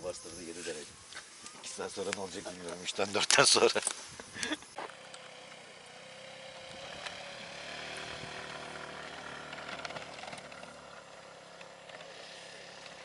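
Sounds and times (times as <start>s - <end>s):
scooter engine straining: 2.9s - 13.0s.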